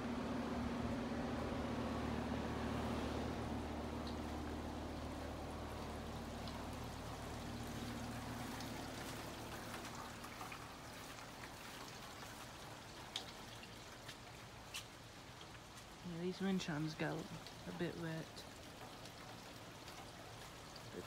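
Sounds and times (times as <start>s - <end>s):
low hum: 0.0s - 11.4s
light rain pattering: 0.0s - 21.0s
water trickling and dripping: 0.1s - 21.0s.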